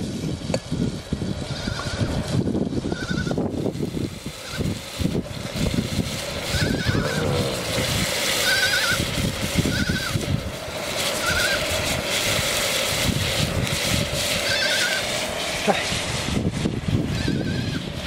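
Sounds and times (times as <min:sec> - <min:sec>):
wood fire crackling: 0:03.4 - 0:18.0
sheep bleating: 0:06.5 - 0:09.0.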